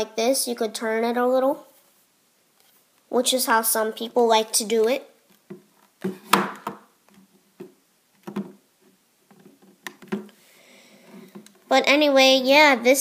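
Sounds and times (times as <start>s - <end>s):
camcorder handling knocks and clicks: 9.7s - 10.3s.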